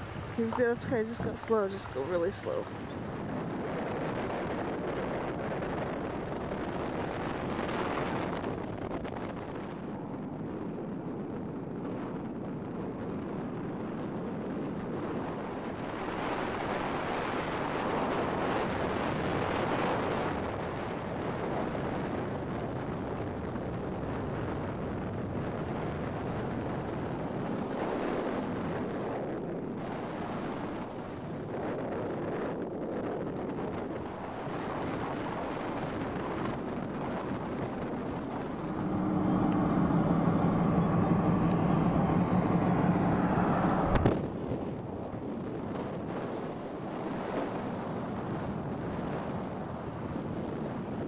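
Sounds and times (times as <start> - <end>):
wind blowing over microphone: 0.0 - 51.0
car road noise: 36.4 - 45.2.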